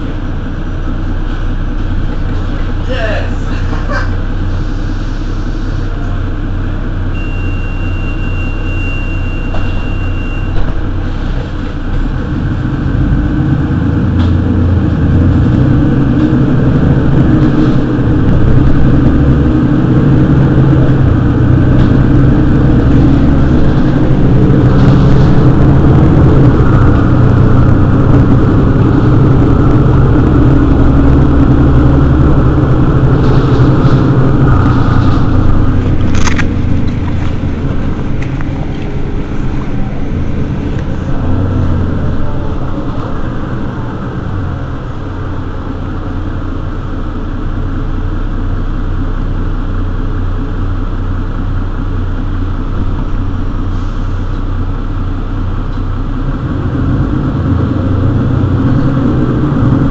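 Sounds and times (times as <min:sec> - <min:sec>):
bus engine running: 0:00.0 - 0:59.9
steady high beep: 0:07.1 - 0:10.7.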